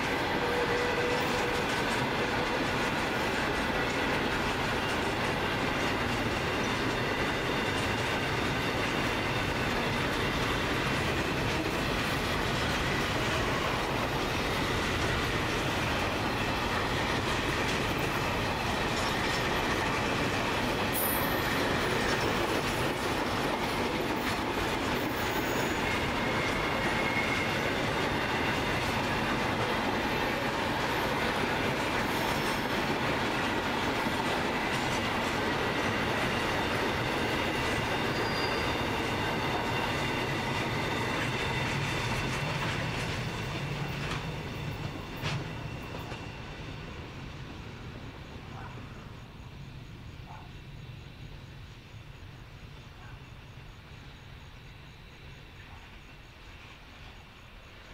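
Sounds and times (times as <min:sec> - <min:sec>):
wheels clicking over rail joints: 0:00.0 - 0:46.3
train wheels rolling on rails: 0:00.0 - 0:57.9
high wheel squeals: 0:25.0 - 0:32.9, 0:35.8 - 0:46.8.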